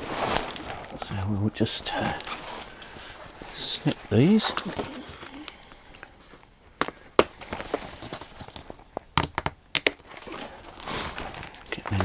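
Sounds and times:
straps rustling against cardboard: 0.0s - 5.4s.

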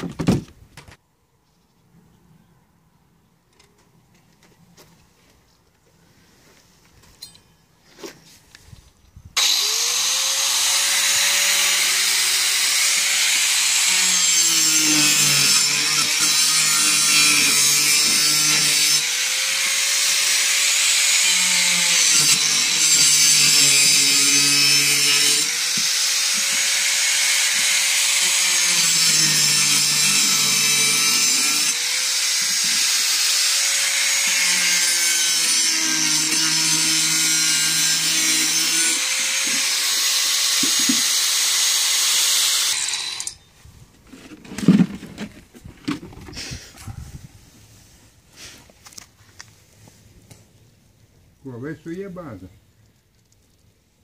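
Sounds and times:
angle grinder cutting plastic: 9.4s - 43.4s.

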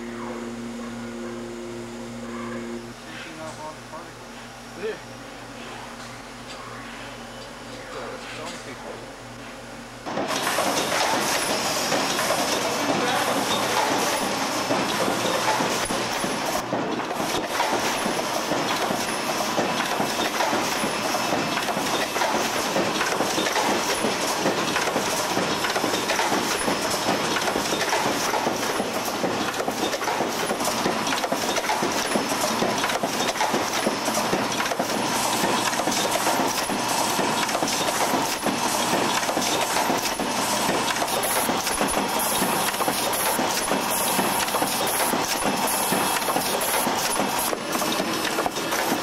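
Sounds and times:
machinery clattering: 10.1s - 49.0s.

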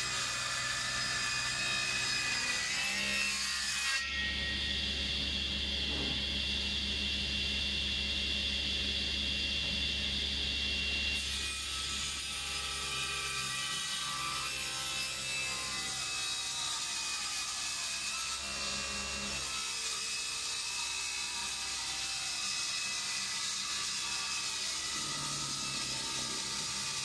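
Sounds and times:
saw blade cutting wood: 0.0s - 4.5s, 11.2s - 27.0s
table saw whining: 0.0s - 27.0s.

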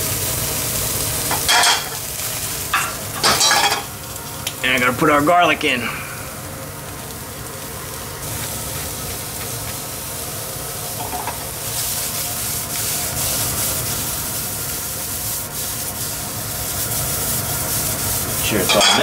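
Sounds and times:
vegetables sizzling in pan: 0.0s - 19.0s
scraping strokes in pan: 10.9s - 19.0s.

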